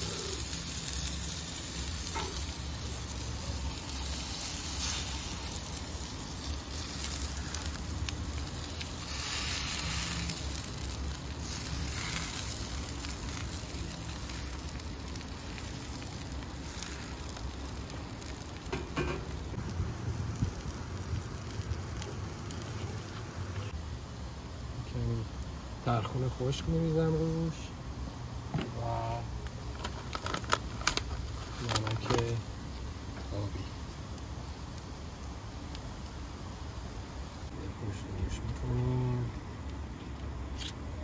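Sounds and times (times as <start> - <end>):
potatoes sizzling in oil: 0.0 - 23.2, 32.0 - 37.5.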